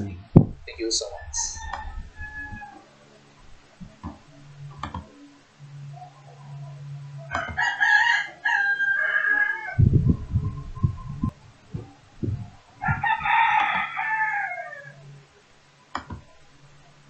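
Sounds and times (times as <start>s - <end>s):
low thumps: 0.0s - 5.2s, 9.8s - 13.9s
rooster crowing: 0.8s - 15.5s.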